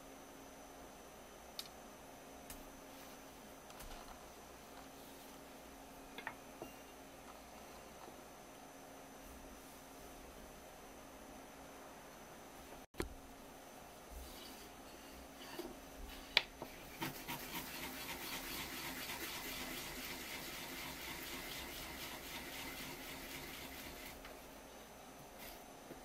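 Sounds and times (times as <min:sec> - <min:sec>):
root grated on a grater: 0:16.8 - 0:24.2.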